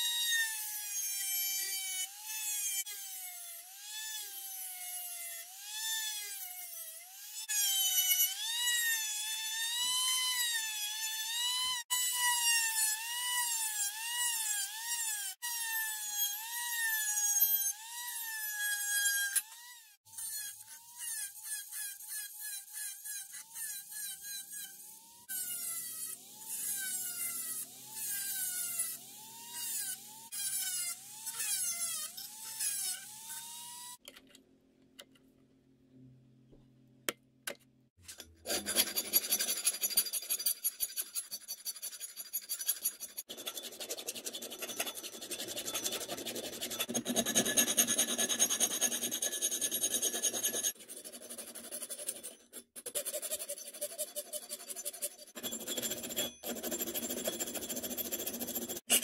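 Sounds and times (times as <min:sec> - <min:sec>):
rotary tool cutting steel: 0:00.0 - 0:34.0, 0:38.0 - 0:59.0
hand file rasping on steel: 0:38.1 - 0:59.0.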